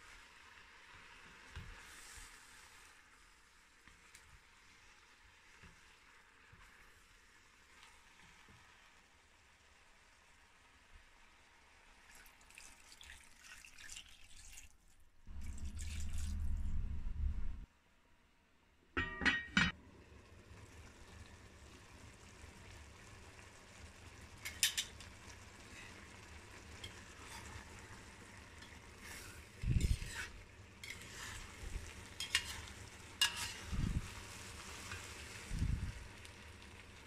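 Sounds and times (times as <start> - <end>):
food sizzling: 0.0 - 17.5, 19.0 - 37.0
metal spoon scraping a pot: 26.8 - 27.8, 28.6 - 31.5, 32.1 - 33.8.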